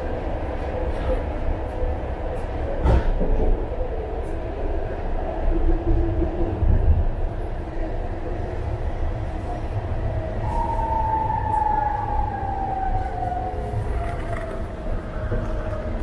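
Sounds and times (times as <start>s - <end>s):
train rumbling: 0.0s - 16.0s.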